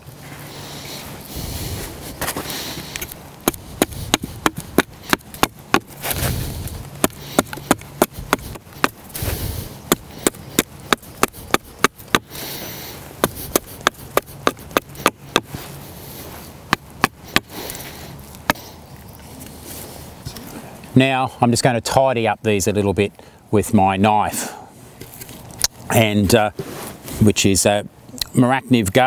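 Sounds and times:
axe chopping wood: 3.0s - 12.4s, 13.2s - 15.6s, 16.7s - 17.6s.

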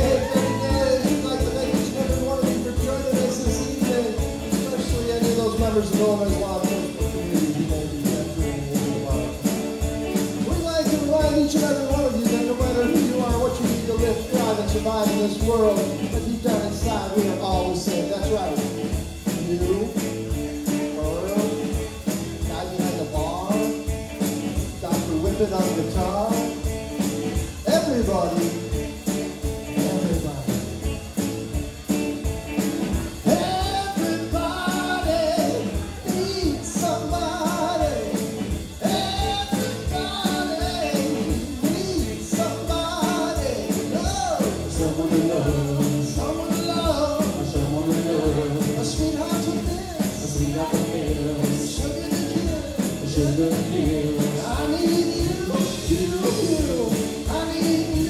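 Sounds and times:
bass guitar: 0.0s - 58.0s
drum kit: 0.0s - 58.0s
electric guitars: 0.0s - 58.0s.

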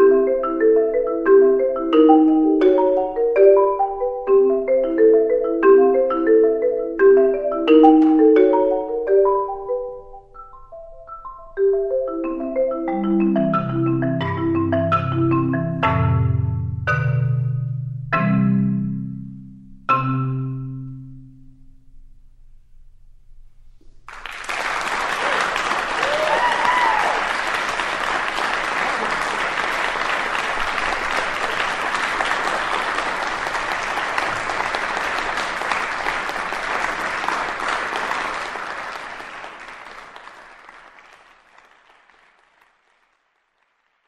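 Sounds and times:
crowd applauding: 24.1s - 44.0s
crowd cheering: 24.1s - 44.0s.

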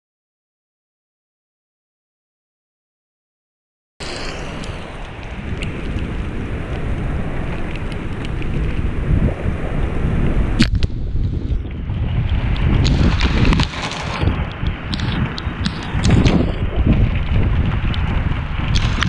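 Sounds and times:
sharp crack: 4.0s - 8.8s, 10.6s - 11.5s, 12.2s - 19.0s
raindrops ticking close by: 4.0s - 9.0s, 10.6s - 19.0s
heavy rain: 4.0s - 19.0s
strong wind buffeting microphone: 4.0s - 19.0s.

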